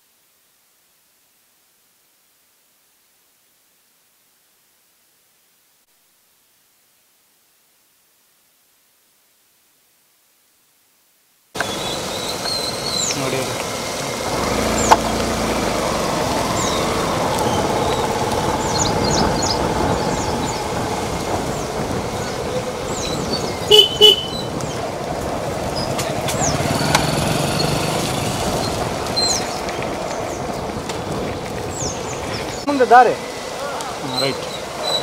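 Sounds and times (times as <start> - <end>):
scooter and motorcycle engines: 11.6 - 35.0
horn toots: 23.6 - 24.6.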